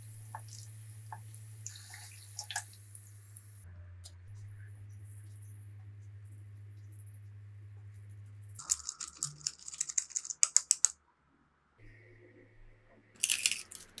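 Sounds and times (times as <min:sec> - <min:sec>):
low steady hum: 0:00.0 - 0:10.1.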